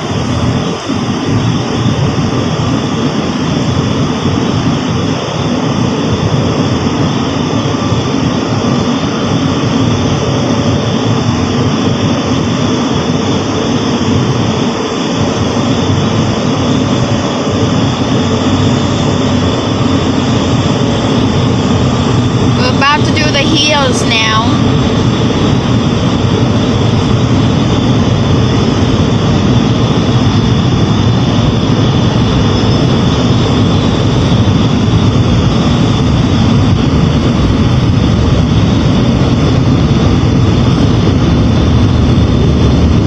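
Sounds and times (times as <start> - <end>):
car wash water spray and machinery: 0.0 - 22.6.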